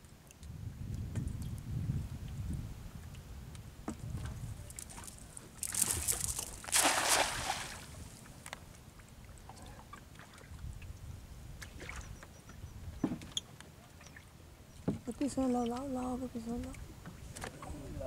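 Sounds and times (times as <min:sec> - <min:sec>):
water lapping: 0:04.2 - 0:10.9
cast net splashing into water: 0:05.6 - 0:08.1.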